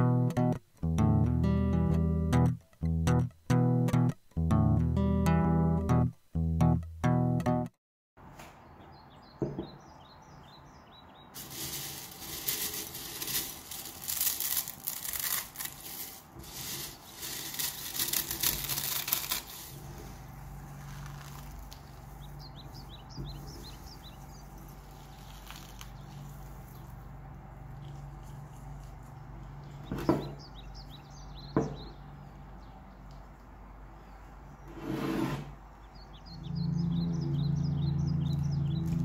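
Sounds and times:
small birds chirping: 8.6 - 13.4, 19.8 - 34.7, 35.6 - 39.0
cornflakes crushed in glass bowl: 11.4 - 19.8, 20.8 - 22.0, 24.8 - 26.4.

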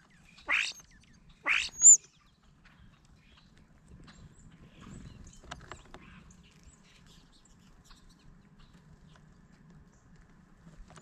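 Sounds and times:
small birds chirping: 0.0 - 10.1.

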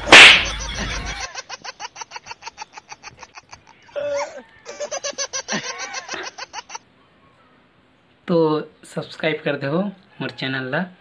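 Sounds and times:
rapid pulsing laughter: 0.0 - 6.8.

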